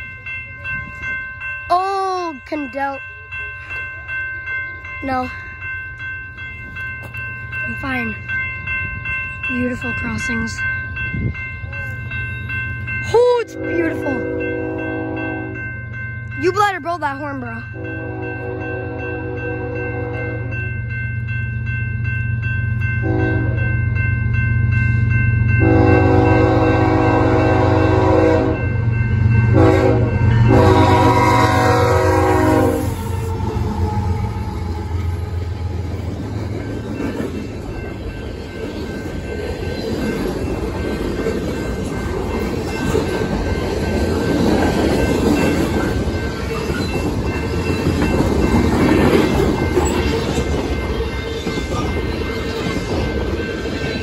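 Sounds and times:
crossing bells ringing: 0.0 - 54.0
freight cars rumbling on rails: 0.0 - 54.0
locomotive horn blasts: 13.6 - 15.6, 17.8 - 20.5, 23.0 - 23.6, 25.6 - 28.7, 29.5 - 35.9.

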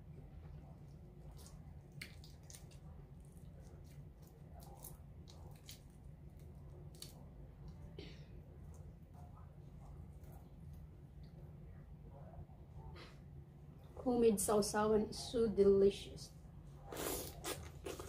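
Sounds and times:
wet clicks of shrimp peeling: 1.4 - 2.8, 3.9 - 7.8.

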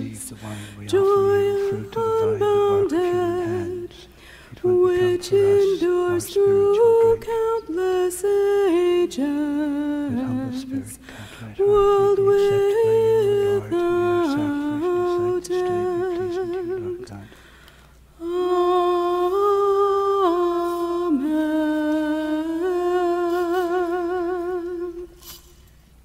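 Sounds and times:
person singing a hymn: 0.0 - 17.4, 18.2 - 25.2
singer breathing: 0.4 - 0.8, 4.1 - 4.6, 11.0 - 11.5, 17.2 - 18.1.

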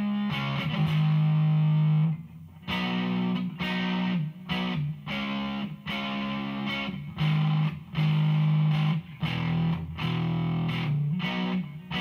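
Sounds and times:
distorted electric guitar chords: 0.0 - 12.0.

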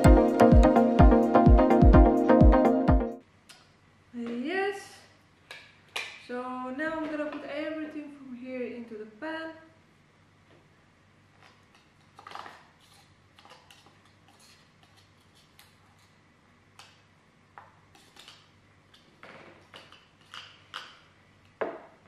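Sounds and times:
metal utensil scraping glass bowl: 12.2 - 16.1.

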